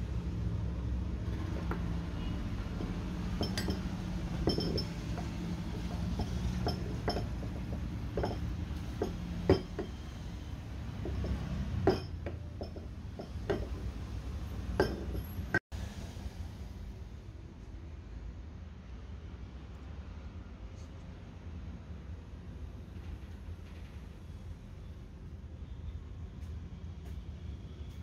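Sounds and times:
metal tools clinking: 1.6s - 10.0s, 14.8s - 15.6s.

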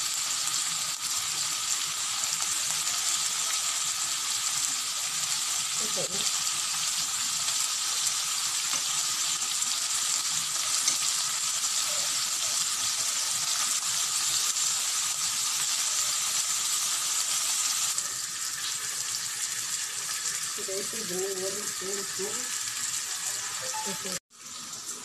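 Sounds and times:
slices sizzling in hot oil: 0.0s - 25.0s.

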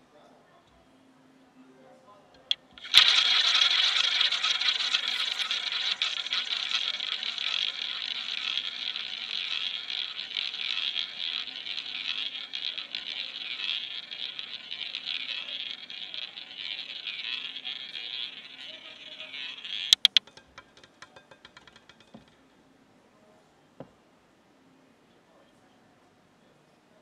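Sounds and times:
roulette ball rolling on wheel: 2.5s - 22.4s.

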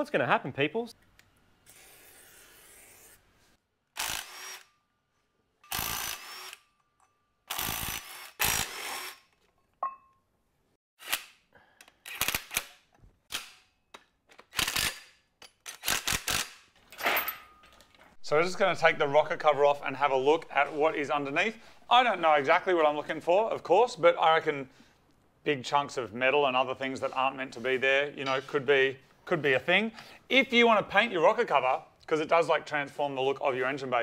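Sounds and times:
impact wrench bursts: 4.0s - 4.7s, 5.6s - 6.7s, 7.5s - 9.2s.

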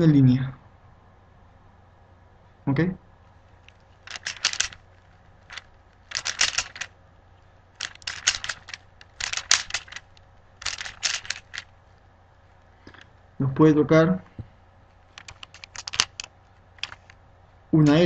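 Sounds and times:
puzzle cube layers clicking: 3.7s - 4.8s, 5.4s - 6.9s, 7.8s - 11.7s, 15.2s - 17.1s.

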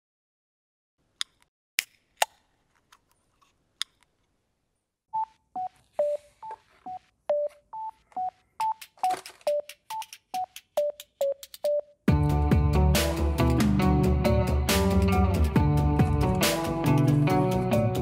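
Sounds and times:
staccato background music: 8.7s - 18.0s.

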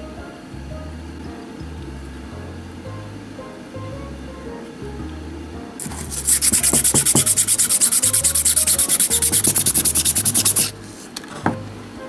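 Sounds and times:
soft background music: 0.0s - 12.0s
sandpaper rubbing plastic: 5.8s - 10.8s.

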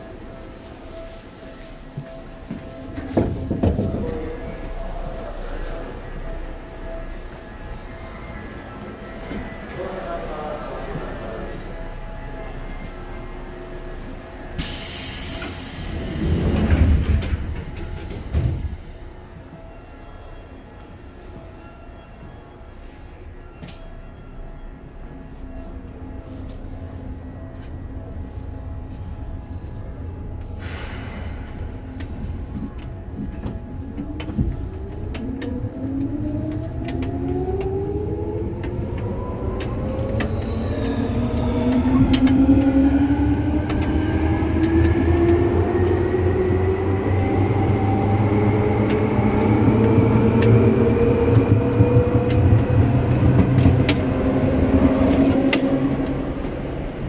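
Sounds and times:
low train rumble: 0.0s - 57.0s
air brake hiss: 14.6s - 16.3s, 30.6s - 31.6s
rail clicks: 14.6s - 19.8s, 30.4s - 57.0s.

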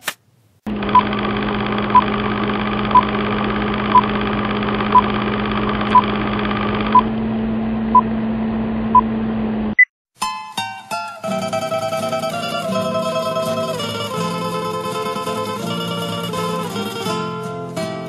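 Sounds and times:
film projector rattle: 0.7s - 6.9s.

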